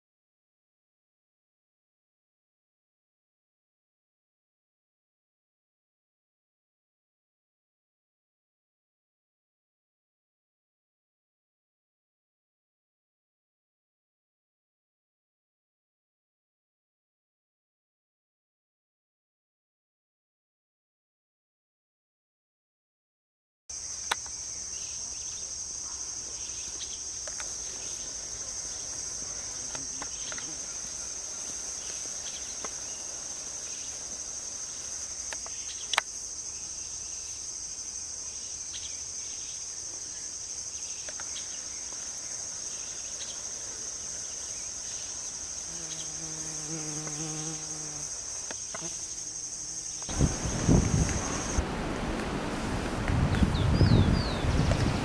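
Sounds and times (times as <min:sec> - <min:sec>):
insects buzzing: 0:23.7 - 0:51.7
wind rumbling on microphone: 0:50.1 - 0:55.0.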